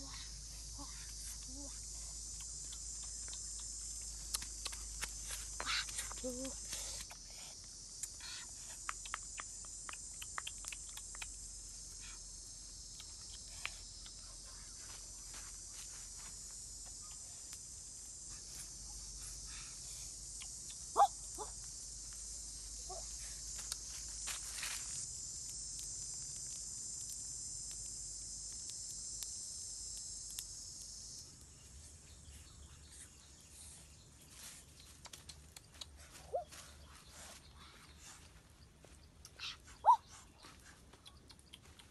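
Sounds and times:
high-pitched insect drone: 0:00.0 - 0:40.6.

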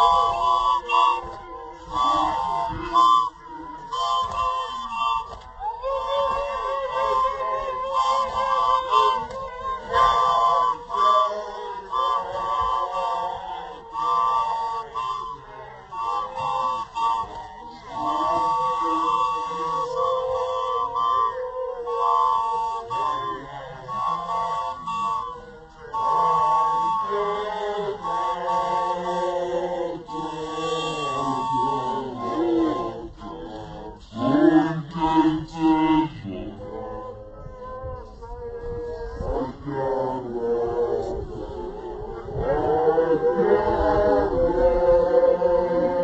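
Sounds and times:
women singing unaccompanied: 0:00.0 - 0:21.3
group chanting unaccompanied: 0:00.0 - 0:46.0.

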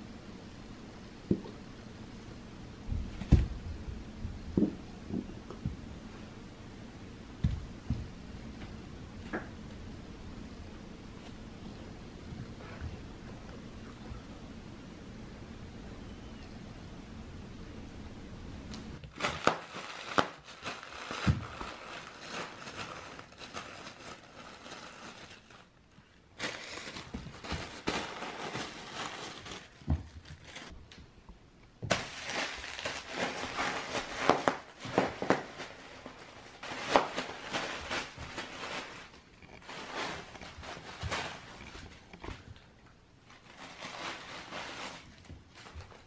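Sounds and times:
plastic sheet crinkling: 0:19.0 - 0:30.9, 0:31.8 - 0:46.0.

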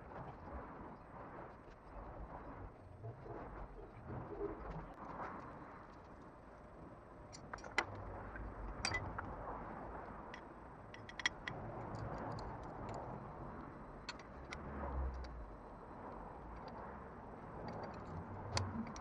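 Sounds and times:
metal nuts and wrench clinking: 0:08.8 - 0:09.2.

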